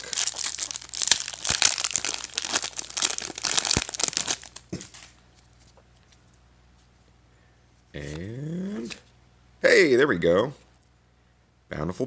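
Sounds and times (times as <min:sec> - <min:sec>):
foil wrapper tearing and crinkling: 0:00.0 - 0:05.1.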